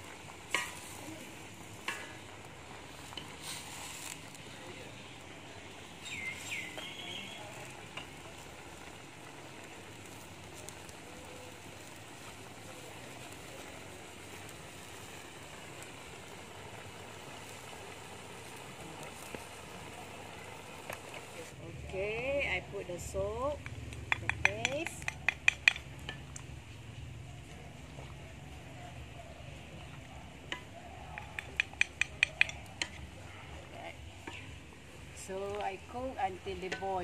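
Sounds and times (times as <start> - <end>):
spinach sizzling in wok: 0.0 - 37.0.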